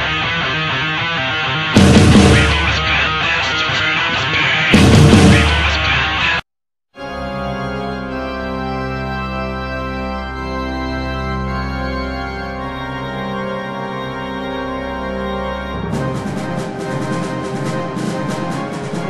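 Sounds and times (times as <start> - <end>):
slow organ chords: 7.0 - 19.0.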